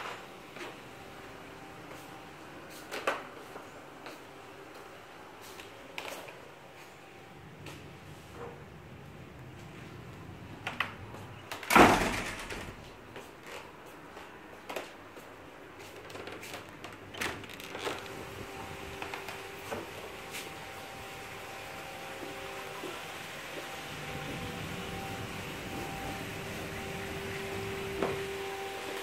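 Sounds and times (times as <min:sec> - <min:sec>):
door moving with a rush: 0:10.6 - 0:13.0.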